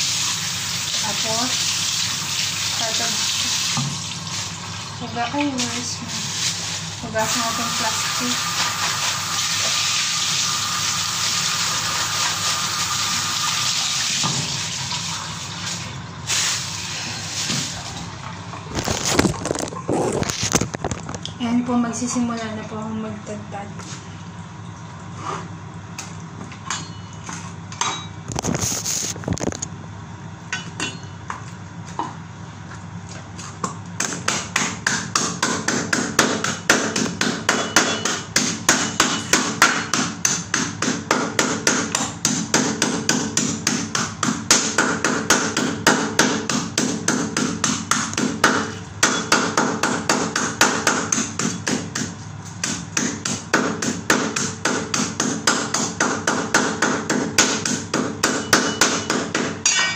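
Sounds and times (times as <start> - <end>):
cleaver chopping chicken on board: 34.0 - 59.5.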